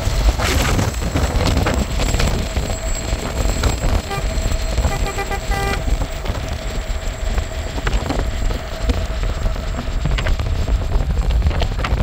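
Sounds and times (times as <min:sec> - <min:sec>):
road rumble: 0:00.0 - 0:12.0
wind: 0:00.0 - 0:12.0
short horn toots: 0:04.0 - 0:05.9.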